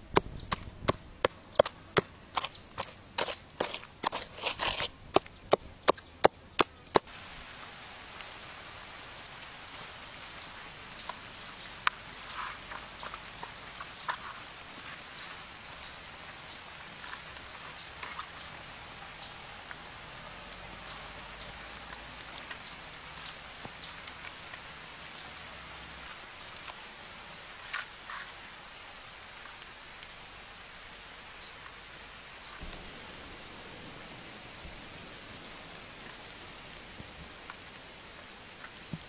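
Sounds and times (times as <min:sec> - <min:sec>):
steady hiss: 0:03.0 - 0:39.0
high insect drone: 0:25.9 - 0:39.0.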